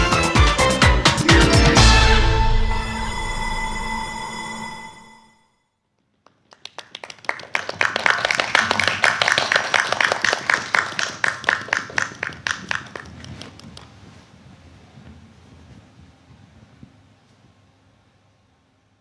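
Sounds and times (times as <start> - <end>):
group clapping: 6.1 - 13.9.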